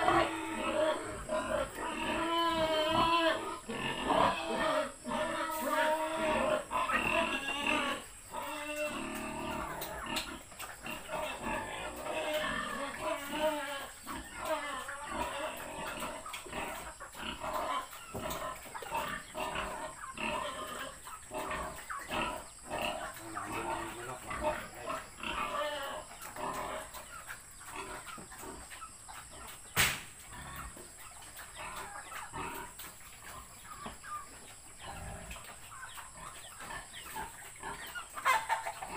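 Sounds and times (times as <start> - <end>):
pig grunting: 0.0 - 29.4, 30.2 - 38.9
sharp knock: 29.8 - 30.2.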